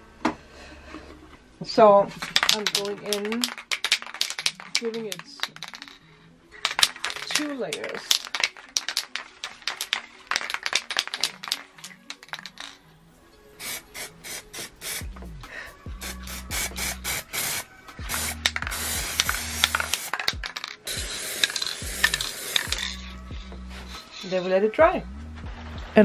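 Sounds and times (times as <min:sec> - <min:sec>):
rapid clicking and rattling: 0:02.2 - 0:06.0, 0:06.6 - 0:12.8
hiss: 0:13.6 - 0:15.2, 0:15.9 - 0:20.2, 0:20.9 - 0:23.2
background music with bass line: 0:14.1 - 0:20.0, 0:21.8 - 0:24.2, 0:24.8 - 0:26.0.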